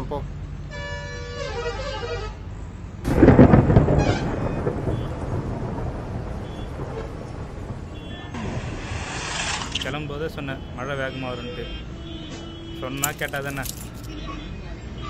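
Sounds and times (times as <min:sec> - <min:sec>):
street noise: 0:00.0 - 0:15.0
thunderclap and rumble: 0:03.0 - 0:10.2
rain hissing: 0:05.4 - 0:10.1.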